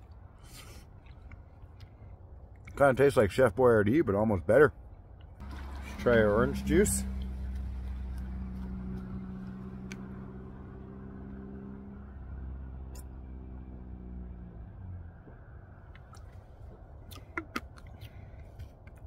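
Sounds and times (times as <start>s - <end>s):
vehicle engine humming: 5.4s - 19.0s.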